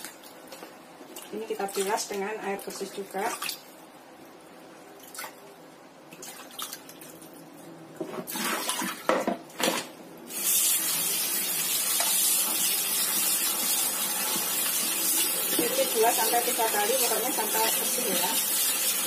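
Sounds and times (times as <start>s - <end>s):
tap water running: 10.3s - 19.0s.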